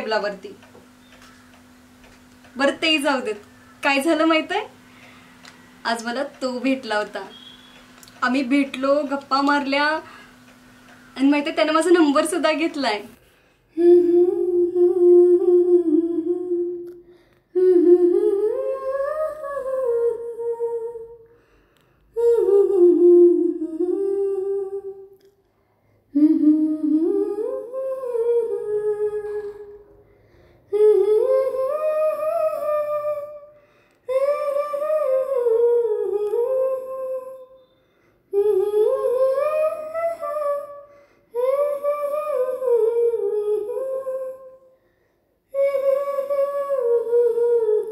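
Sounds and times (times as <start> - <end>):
woman humming: 13.8 - 21.2.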